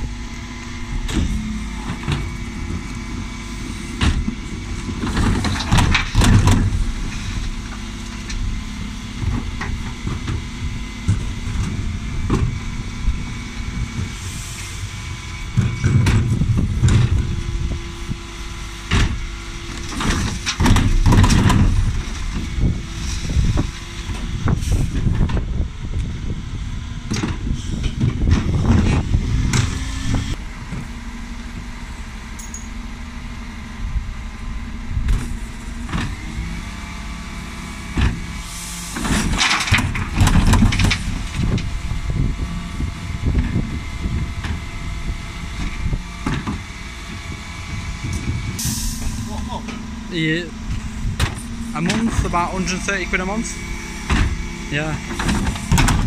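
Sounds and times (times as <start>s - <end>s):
bin lift working: 0.0s - 56.0s
diesel truck engine running: 0.0s - 56.0s.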